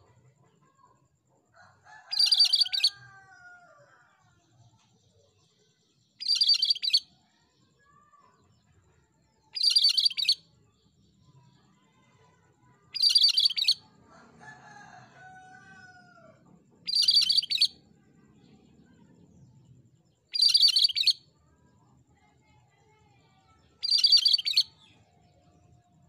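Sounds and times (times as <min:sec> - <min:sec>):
bird harsh song bursts: 0:23.8 - 0:24.6.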